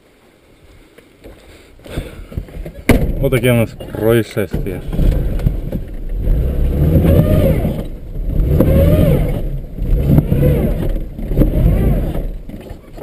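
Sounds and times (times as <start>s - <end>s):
car engine revving hard: 4.8s - 12.6s.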